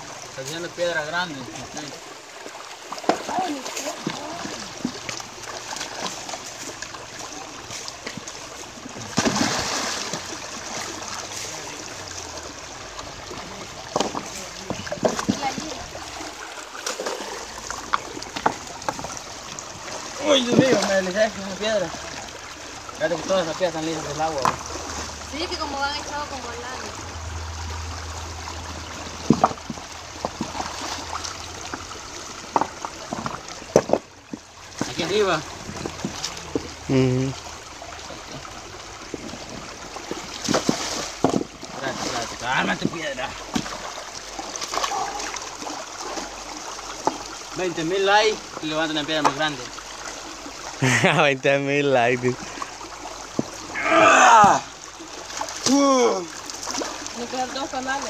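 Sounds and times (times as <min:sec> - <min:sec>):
stream trickling over rocks: 0:00.0 - 0:58.0
loud water splash: 0:08.9 - 0:12.2, 0:53.6 - 0:57.9
stones knocking together: 0:17.8 - 0:19.1, 0:29.2 - 0:30.6, 0:32.4 - 0:34.9, 0:40.4 - 0:41.6.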